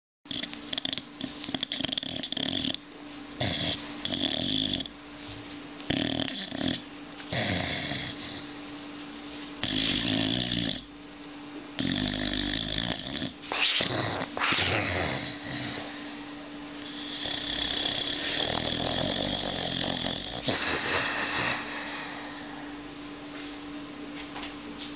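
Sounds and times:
dog snoring loudly: 0.3s - 2.8s, 3.4s - 4.9s, 5.9s - 8.6s, 9.6s - 10.9s, 11.8s - 22.7s.

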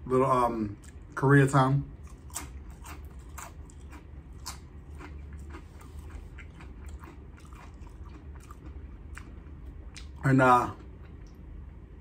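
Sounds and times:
low steady hum: 0.0s - 12.0s
person chewing crunchy food: 1.9s - 11.3s.

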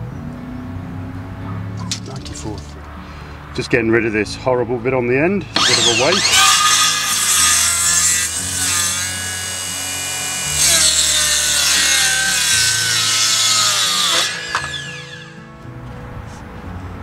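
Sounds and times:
circular saw motor whine: 5.5s - 15.6s.

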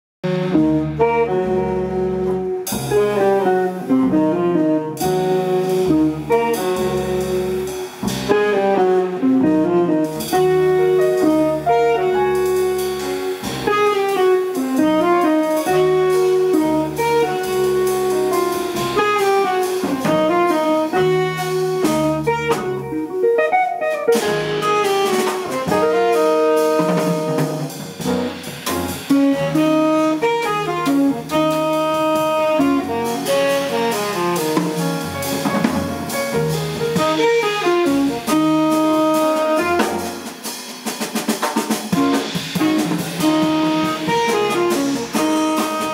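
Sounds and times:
small jazz band: 0.2s - 45.9s
saxophone melody: 0.4s - 40.5s, 42.0s - 45.9s.

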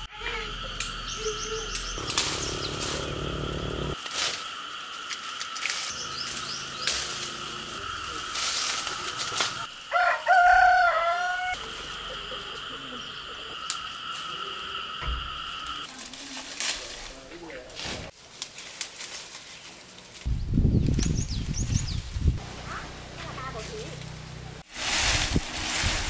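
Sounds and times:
rooster crowing: 9.8s - 11.7s.

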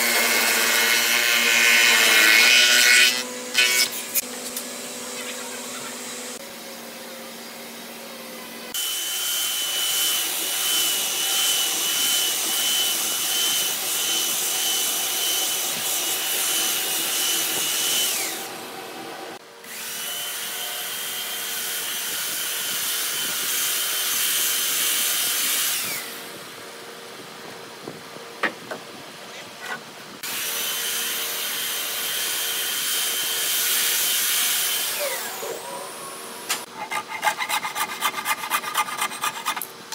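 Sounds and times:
belt sander grinding wood: 36.6s - 39.8s.

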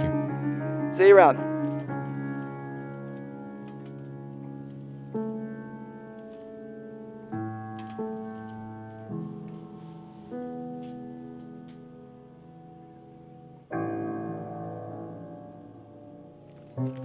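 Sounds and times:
slow piano chords: 0.0s - 17.0s.

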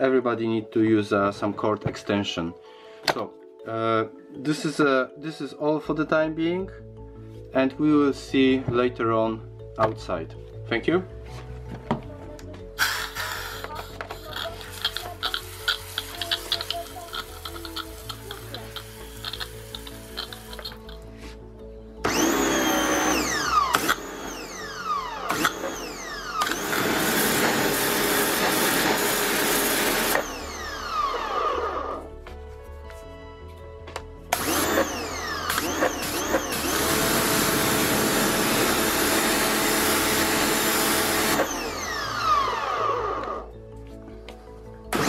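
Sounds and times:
pressure washer motor whining: 12.8s - 21.0s, 22.0s - 32.1s, 34.3s - 43.4s
water jet hissing on wood: 12.8s - 21.0s.

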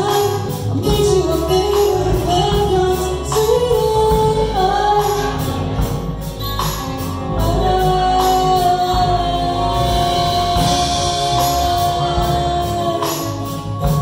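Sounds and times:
live band playing: 0.0s - 14.0s.

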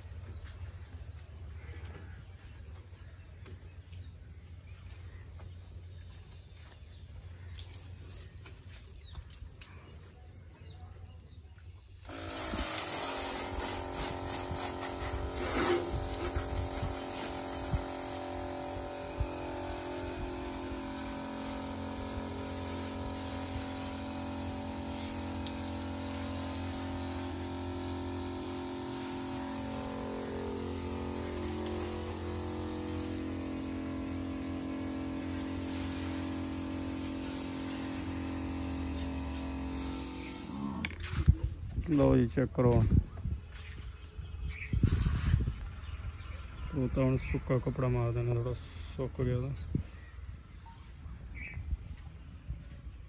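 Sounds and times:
spray hissing: 12.0s - 41.5s, 44.8s - 45.5s
electric pump whining: 12.0s - 42.0s.

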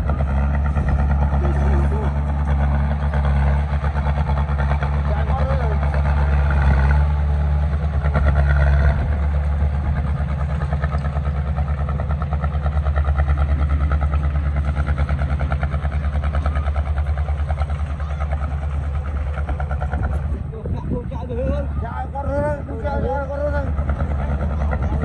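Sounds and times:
heavy diesel engine running: 0.0s - 25.0s.

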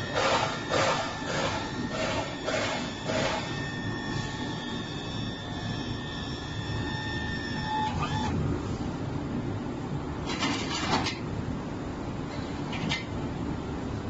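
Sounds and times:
motor and hydraulic pump whine: 0.0s - 9.0s.

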